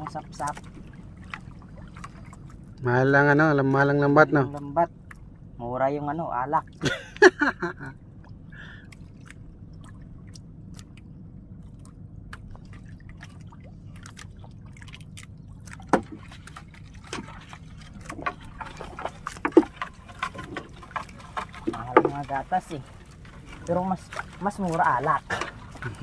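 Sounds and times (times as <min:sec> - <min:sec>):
water sloshing against boat hull: 0:00.0 - 0:26.0
clicks and knocks of net handling: 0:15.7 - 0:26.0.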